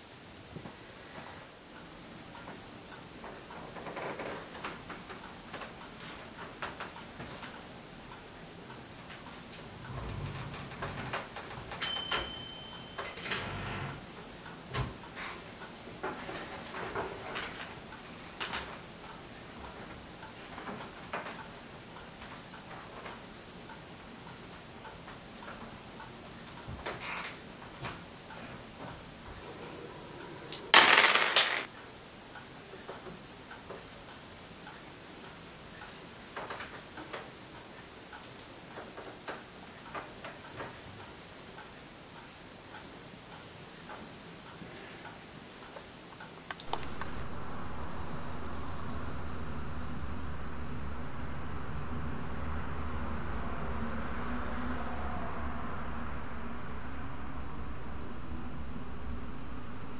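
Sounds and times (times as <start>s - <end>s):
typewriter bell ding: 11.8s - 13.6s.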